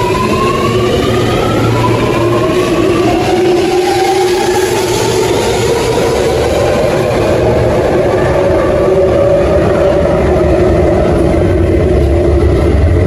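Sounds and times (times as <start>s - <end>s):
electric train whine: 0.0s - 13.0s
train rumble: 0.0s - 13.0s.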